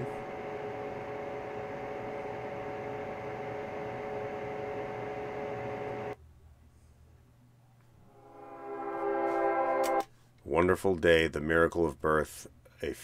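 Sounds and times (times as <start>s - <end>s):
droning hum: 0.0s - 6.2s.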